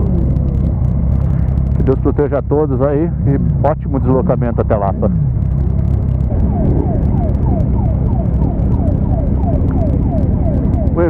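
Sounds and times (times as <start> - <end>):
motorcycle engines rumbling: 0.0 - 11.0
police siren: 3.2 - 11.0.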